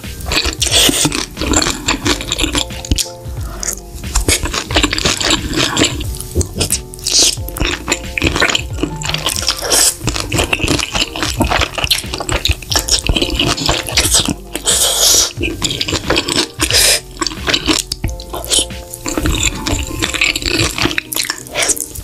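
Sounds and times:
background music: 0:00.0 - 0:22.0
chewing: 0:00.0 - 0:22.0
slurping noodles: 0:00.0 - 0:22.0.

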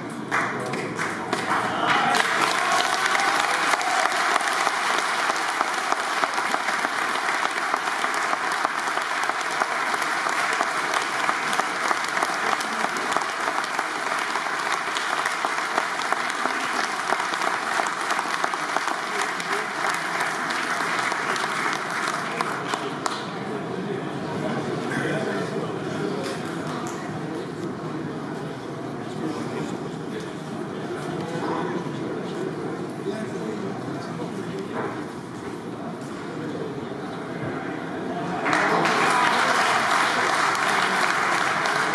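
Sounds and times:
audience applause: 0:00.3 - 0:23.2, 0:38.3 - 0:41.9.

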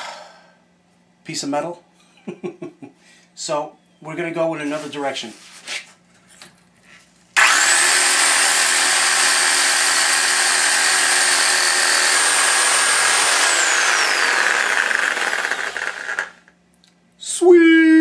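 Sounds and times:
power tool grinding metal: 0:07.4 - 0:16.4.

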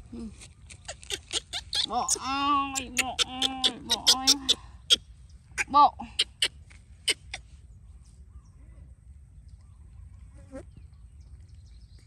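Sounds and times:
baby monkey squeak: 0:00.6 - 0:05.0, 0:05.6 - 0:07.4
low wind rumble on microphone: 0:04.6 - 0:12.0.

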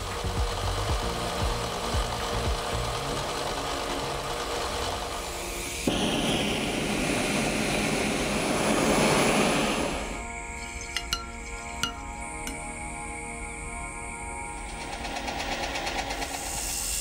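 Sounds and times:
gas torch hissing: 0:00.0 - 0:12.8, 0:14.5 - 0:17.0
machine whirring: 0:00.0 - 0:13.6, 0:14.3 - 0:17.0.

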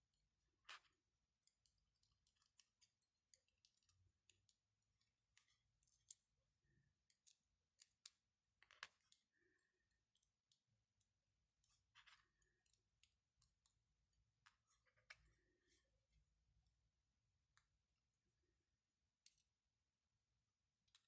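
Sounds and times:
tweezers tapping plastic parts: 0:00.9 - 0:06.2.

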